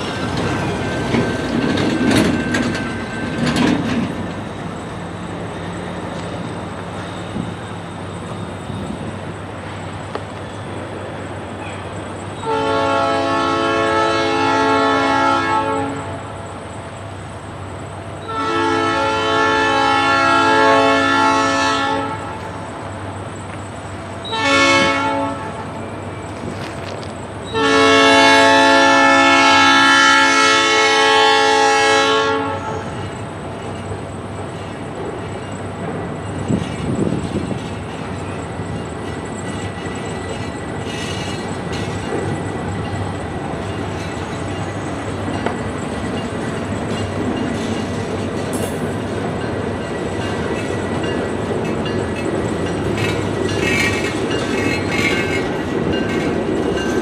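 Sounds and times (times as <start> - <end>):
train rumbling and clattering by: 0.0 - 57.0
locomotive horn blasts: 12.4 - 16.3, 18.2 - 22.5, 24.2 - 25.7, 27.5 - 33.0.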